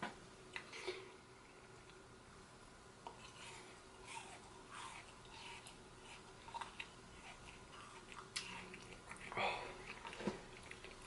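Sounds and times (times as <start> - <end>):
faint chewing sounds: 3.0 - 11.0.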